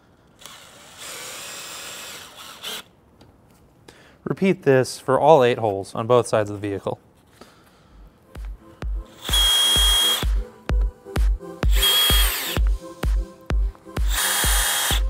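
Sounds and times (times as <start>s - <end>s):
cordless drill motor whine: 9.1s - 10.4s, 11.7s - 12.6s, 14.0s - 15.0s.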